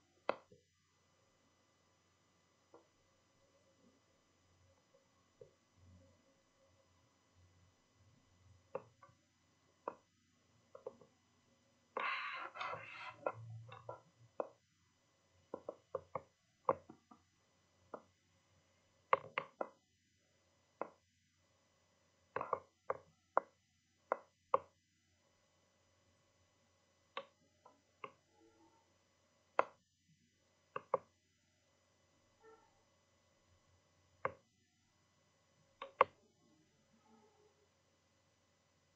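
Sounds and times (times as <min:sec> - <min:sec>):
computer mouse clicks: 0:00.2 - 0:00.6, 0:10.7 - 0:11.1, 0:11.9 - 0:14.6, 0:15.5 - 0:17.2, 0:19.1 - 0:19.8, 0:22.3 - 0:24.8, 0:27.1 - 0:28.2, 0:30.7 - 0:31.1, 0:35.8 - 0:36.2.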